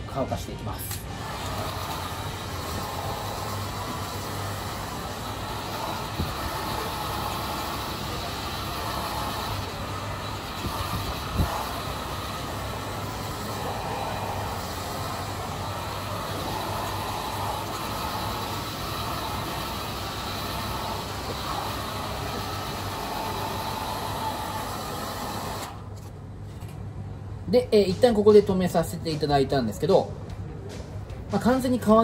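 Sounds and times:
hair dryer running: 0:00.9 - 0:25.8.

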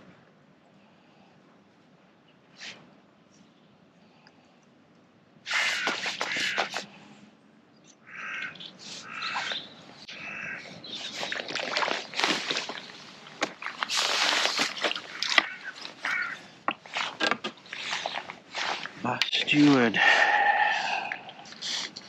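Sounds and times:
fish splashing at water surface: 0:11.1 - 0:18.9.

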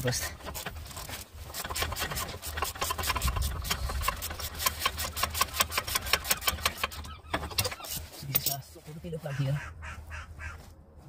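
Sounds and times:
rapid tool clicking: 0:00.4 - 0:07.7.

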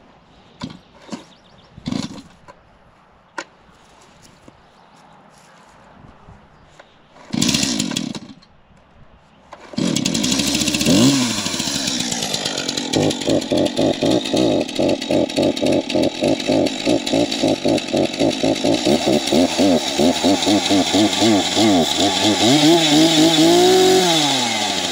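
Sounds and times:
chainsaw starting and revving: 0:01.8 - 0:02.4, 0:07.2 - 0:08.4, 0:09.5 - 0:24.9.

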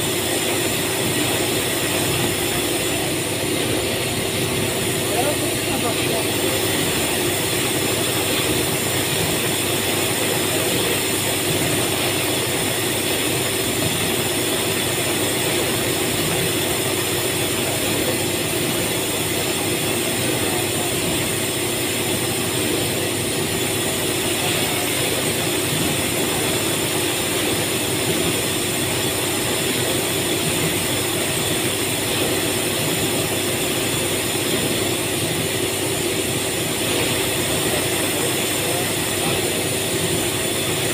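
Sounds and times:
factory machinery drone: 0:00.0 - 0:40.9.

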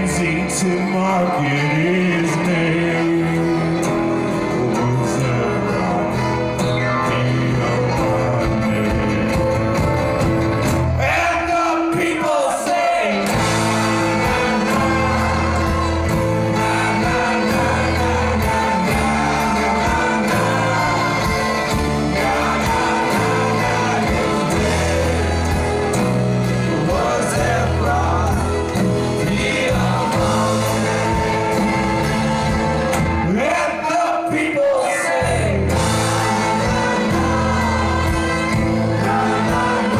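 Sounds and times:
live brass band playing: 0:00.0 - 0:34.1, 0:35.1 - 0:39.9
drums: 0:00.0 - 0:39.9
people singing together: 0:11.0 - 0:39.9.

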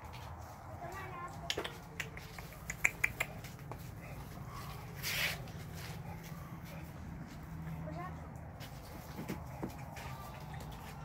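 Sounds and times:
dog sniffing at microphone: 0:02.5 - 0:06.9.

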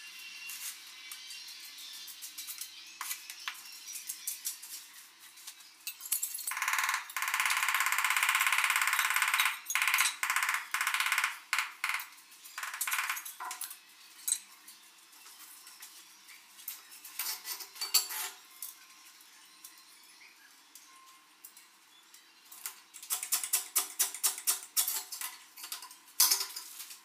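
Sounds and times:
rapid buzzing tap on tiles: 0:06.5 - 0:13.7.

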